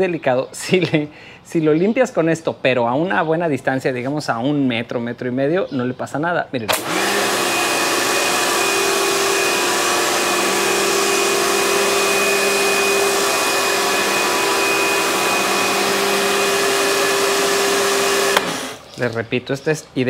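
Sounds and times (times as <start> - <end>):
pressure washer humming and whining: 6.7 - 18.9.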